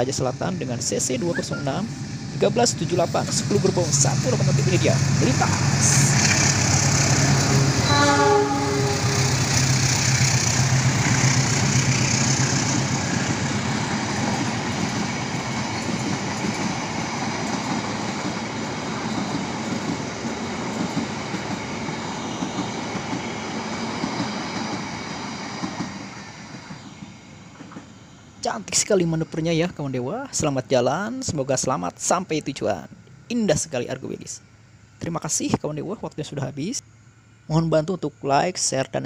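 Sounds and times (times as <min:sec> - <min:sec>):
train wheels rumbling on rails: 0:00.0 - 0:29.4
diesel locomotive engine drone: 0:00.0 - 0:31.1.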